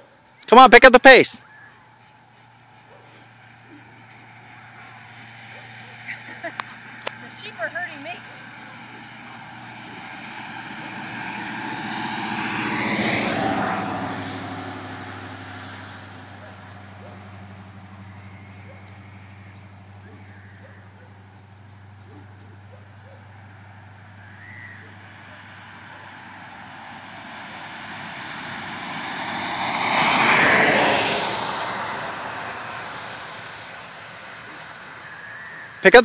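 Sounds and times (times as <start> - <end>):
vehicle passing by: 0.0 - 36.0
steady low hum: 1.5 - 12.6.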